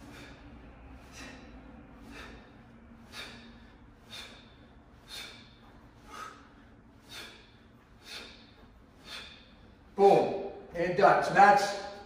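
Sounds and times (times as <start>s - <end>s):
person exhaling sharply: 1.0s - 9.6s.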